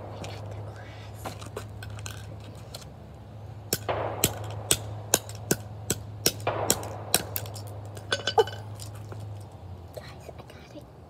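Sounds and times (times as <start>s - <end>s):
steady low hum: 0.0s - 11.0s
hammer striking camera: 3.7s - 8.8s.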